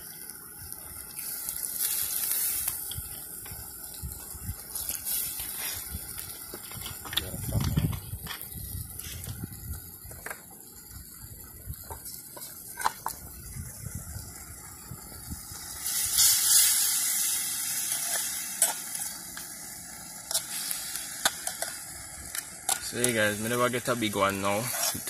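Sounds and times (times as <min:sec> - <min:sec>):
broth simmering: 0:00.0 - 0:25.0
loud hissing sizzle: 0:00.0 - 0:25.0.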